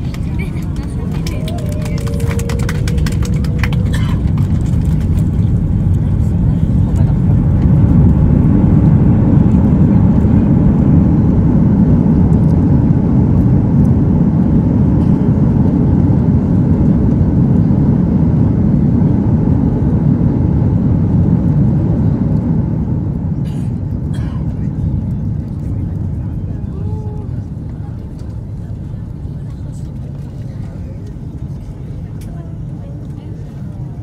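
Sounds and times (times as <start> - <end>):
airliner cabin rumble: 0.0 - 34.0.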